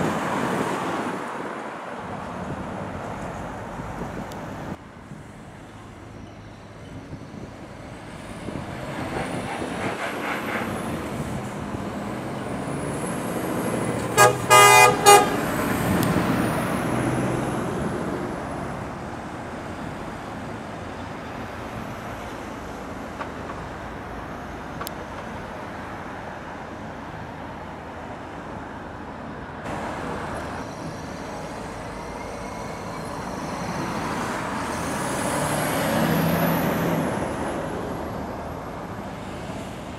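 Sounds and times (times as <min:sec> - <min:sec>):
truck diesel engines: 0:00.0 - 0:39.9
vehicle horn tooting: 0:09.1 - 0:11.0, 0:14.1 - 0:15.6.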